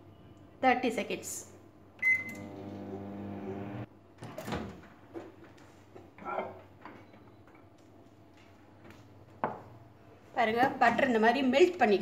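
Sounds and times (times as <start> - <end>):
microwave oven beep: 2.0 - 3.8
microwave oven humming: 2.0 - 3.9.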